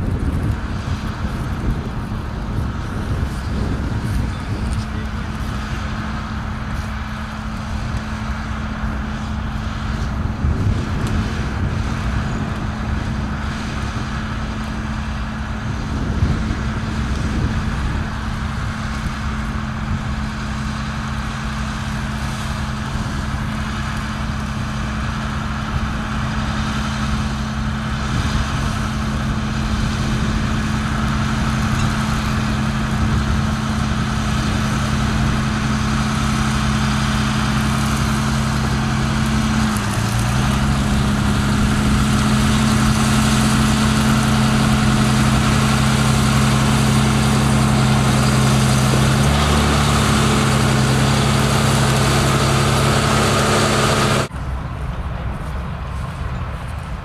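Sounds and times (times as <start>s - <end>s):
tractor diesel engine drone: 0.0s - 57.0s.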